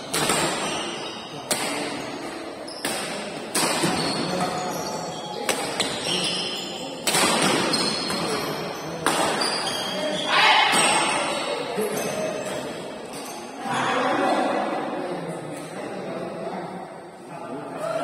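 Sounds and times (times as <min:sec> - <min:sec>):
rackets hitting shuttlecock: 0:00.1 - 0:04.7, 0:05.4 - 0:06.1, 0:07.0 - 0:08.4, 0:09.0 - 0:09.7.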